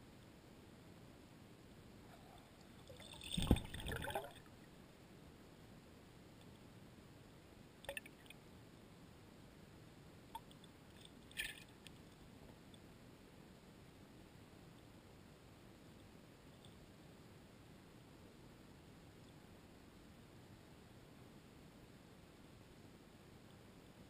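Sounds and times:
muffled underwater water hiss: 1.8s - 14.3s.

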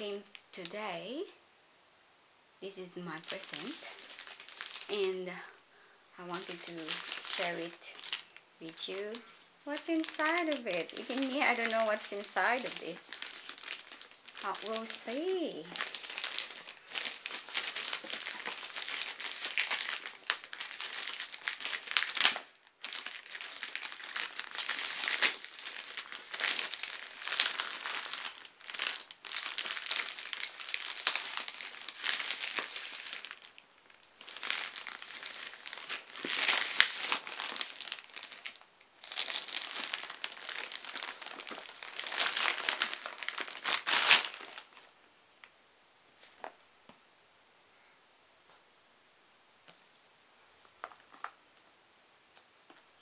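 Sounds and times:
plastic packaging crinkling: 3.1s - 5.6s, 6.2s - 44.9s.

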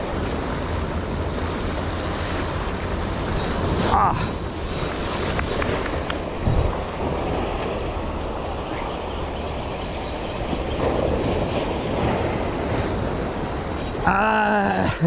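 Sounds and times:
sea waves washing on shore: 0.0s - 15.0s
wind rumbling on microphone: 0.0s - 15.0s.

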